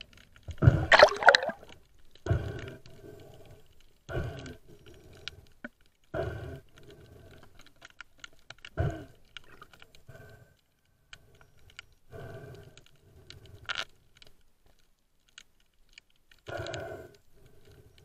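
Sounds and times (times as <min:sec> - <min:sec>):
muffled underwater swish: 0:00.7 - 0:01.6
faint clicks: 0:01.6 - 0:18.0.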